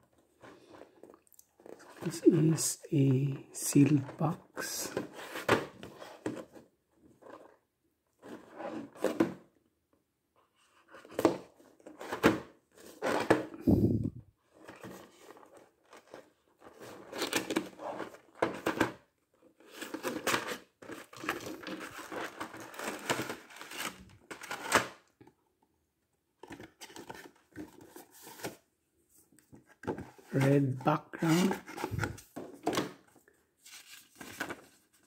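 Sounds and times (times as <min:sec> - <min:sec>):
cardboard rustling and tearing: 0:14.6 - 0:19.0, 0:19.6 - 0:25.0, 0:29.8 - 0:32.8.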